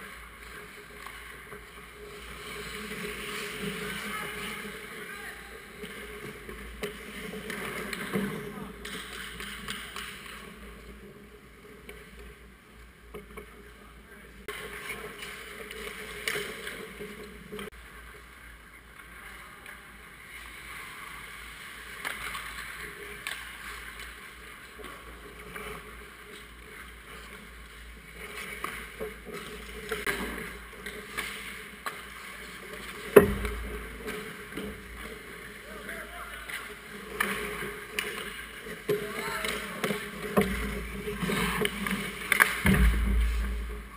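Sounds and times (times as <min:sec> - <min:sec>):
skates scraping on ice: 0:00.0 - 0:12.5, 0:14.5 - 0:17.7, 0:19.1 - 0:43.9
stick and puck clacks: 0:05.7 - 0:12.4, 0:15.1 - 0:17.7, 0:22.0 - 0:26.5, 0:28.2 - 0:35.5, 0:36.4 - 0:43.9.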